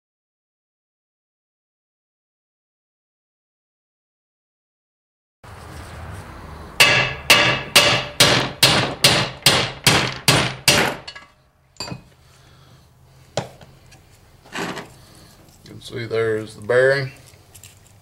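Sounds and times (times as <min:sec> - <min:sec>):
hammer striking metal: 0:06.8 - 0:12.1.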